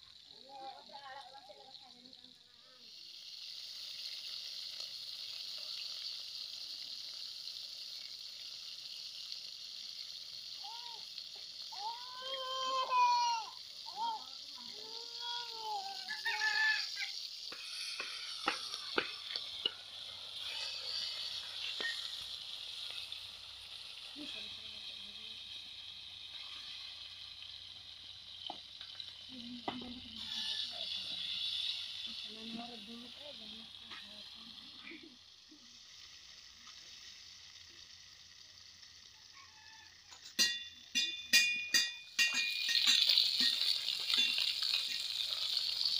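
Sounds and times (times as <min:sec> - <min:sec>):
fish frying in hot oil: 0:00.0 - 0:45.9
metal spatula scraping pan: 0:30.2 - 0:30.8.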